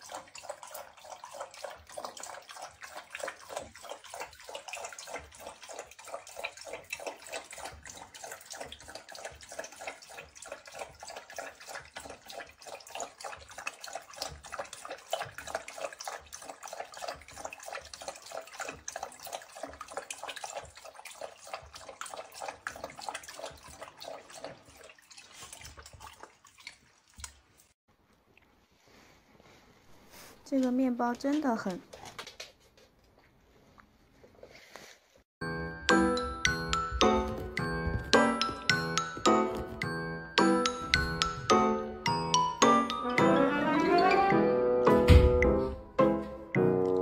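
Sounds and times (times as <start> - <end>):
dog lapping water: 0.0 - 27.8.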